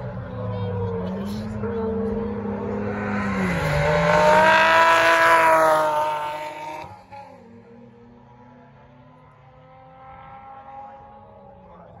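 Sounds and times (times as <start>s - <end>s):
car engine at full throttle: 0.0s - 12.0s.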